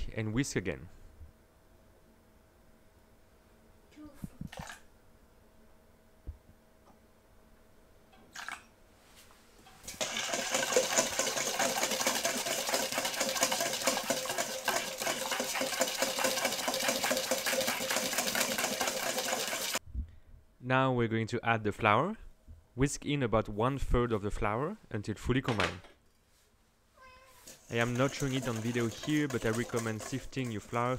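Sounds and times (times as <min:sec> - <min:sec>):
wire whisk rattling in bowl: 0:10.0 - 0:19.8, 0:27.4 - 0:30.9.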